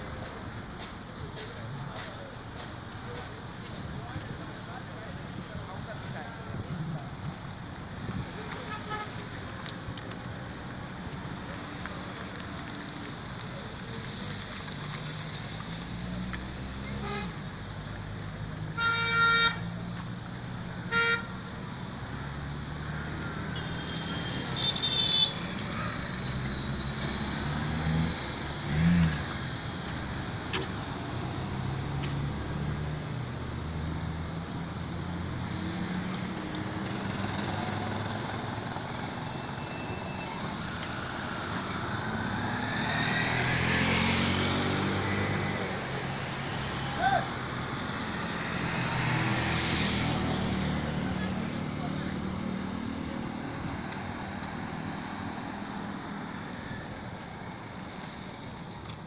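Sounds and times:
road traffic passing: 0.0s - 59.0s
car horns tooting: 18.7s - 19.7s, 23.5s - 28.4s.

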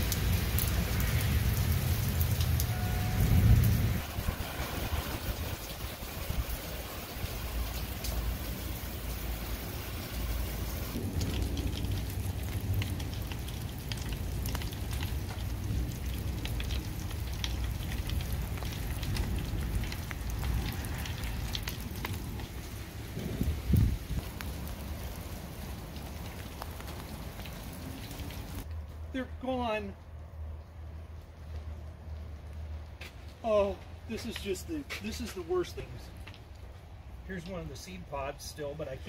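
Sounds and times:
low rumble: 0.2s - 6.5s
water drops pattering: 10.9s - 22.8s.

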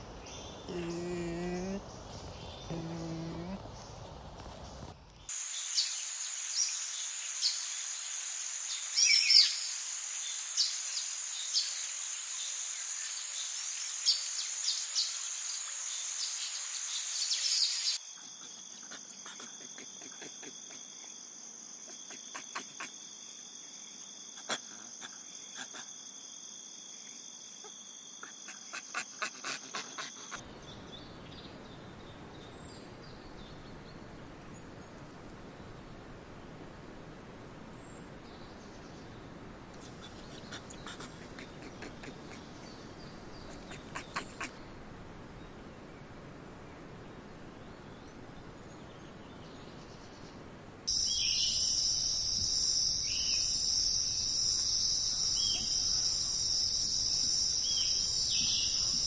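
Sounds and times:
faint even hiss: 0.0s - 59.0s
insect chirps and clicks: 1.8s - 30.4s, 50.9s - 59.0s
high-pitched insect chorus: 5.3s - 30.4s, 50.9s - 59.0s.

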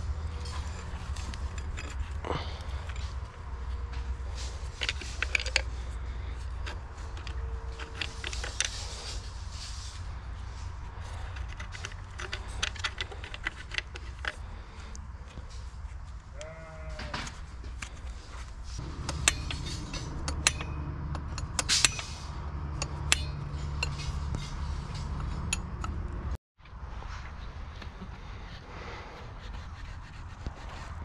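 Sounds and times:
animal bleat: 16.3s - 17.4s.

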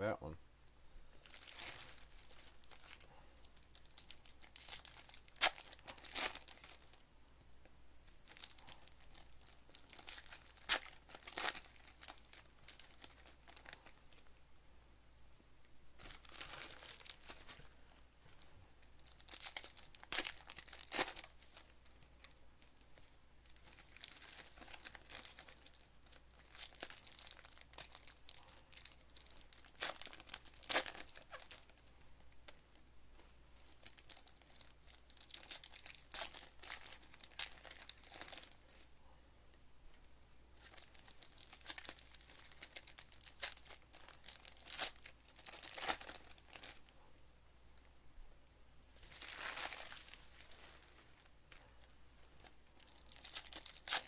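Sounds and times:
foil wrappers crinkling and tearing: 1.2s - 7.0s, 8.2s - 14.0s, 16.0s - 17.7s, 19.0s - 31.8s, 33.6s - 38.8s, 40.6s - 46.9s, 49.0s - 51.3s, 52.2s - 54.0s.

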